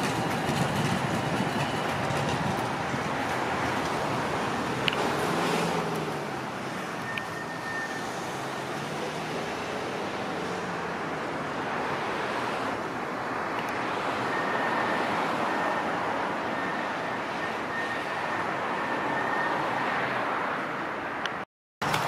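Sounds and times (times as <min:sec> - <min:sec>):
tram wheels rolling on rail: 0:00.0 - 0:08.0.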